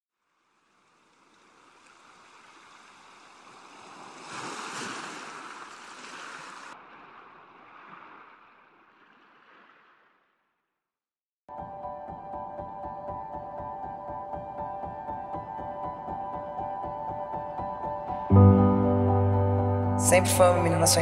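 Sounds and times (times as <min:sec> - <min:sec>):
ocean surf on beach: 0:00.7 - 0:10.1.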